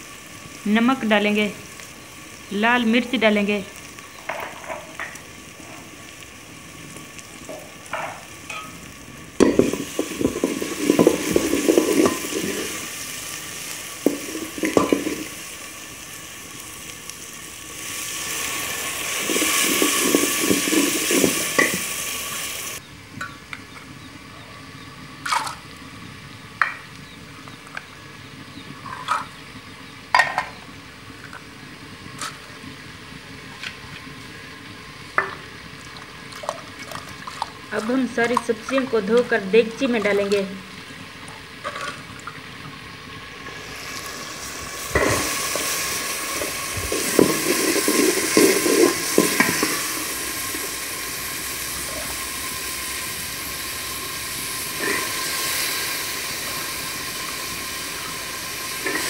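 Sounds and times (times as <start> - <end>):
loud rushing sizzle: 0.0 - 27.4, 38.9 - 59.0
food frying in a pot: 0.0 - 59.0
ladle stirring: 9.4 - 12.8, 46.3 - 49.8.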